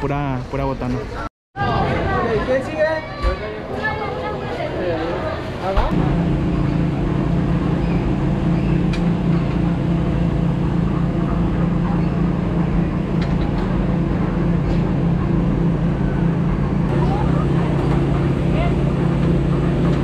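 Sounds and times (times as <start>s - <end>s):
cable car mechanical hum: 5.9s - 20.0s.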